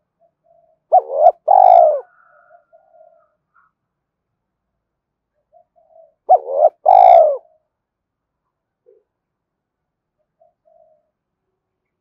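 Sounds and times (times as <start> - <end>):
dove cooing: 0.4 - 3.3, 5.5 - 7.6, 10.4 - 11.1.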